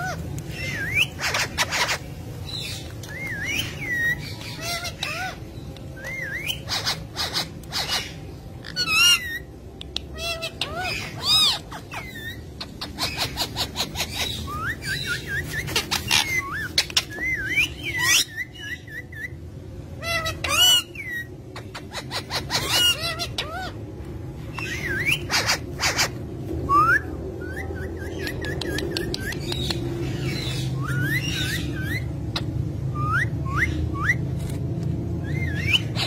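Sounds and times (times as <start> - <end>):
parakeets chirping and whistling: 0.0 - 36.0
bird clicks: 9.8 - 10.1, 28.2 - 29.9.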